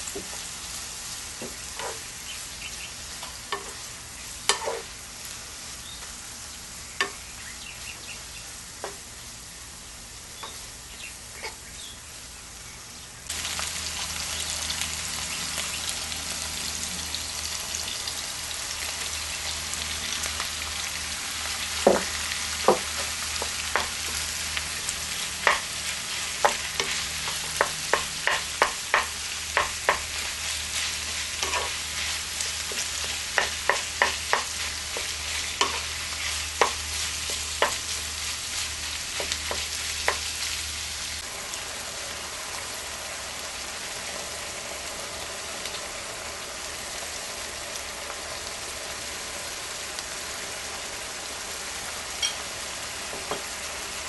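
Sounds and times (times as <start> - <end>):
food sizzling in a pan: 0.0 - 12.6, 13.3 - 54.0
wooden spoon tapping a pan: 21.8 - 24.2, 25.4 - 25.7, 26.4 - 30.1, 32.7 - 35.8, 36.6 - 37.8, 53.1 - 53.5.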